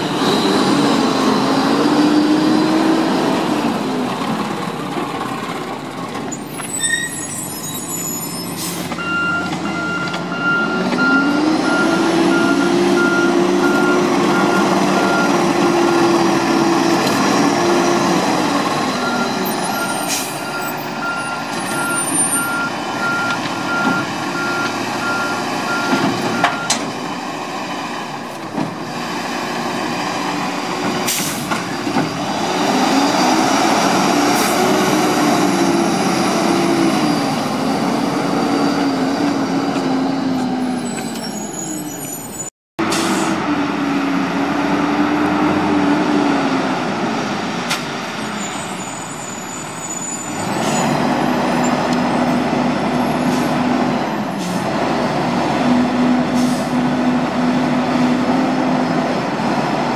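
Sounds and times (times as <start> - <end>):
diesel engine revving: 0.0 - 6.8, 8.6 - 41.0, 42.8 - 59.9
truck backup alarm beeping: 7.0 - 16.4, 18.7 - 26.9.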